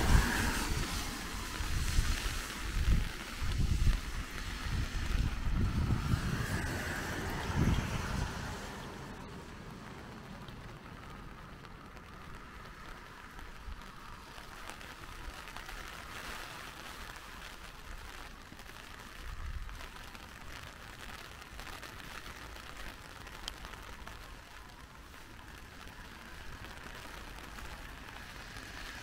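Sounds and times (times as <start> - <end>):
low rumble: 0.0 - 12.0
rain pattering: 0.0 - 29.0.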